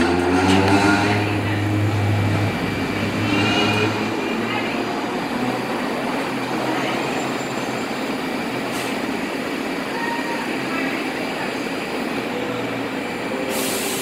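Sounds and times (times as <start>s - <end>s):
train wheels rumbling on rails: 0.0s - 14.0s
short hiss: 13.5s - 14.0s.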